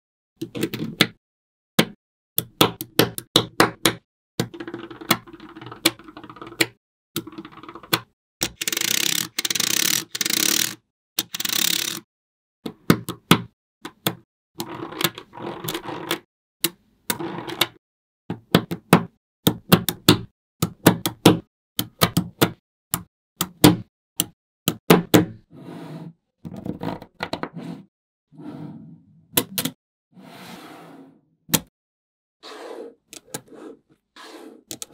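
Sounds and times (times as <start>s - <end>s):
magnetic balls clicking together: 7.3s - 12.0s.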